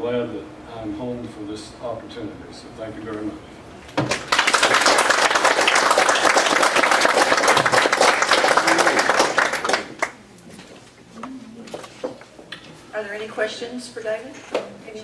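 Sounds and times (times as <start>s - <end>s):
audience applauding: 4.1s - 10.2s.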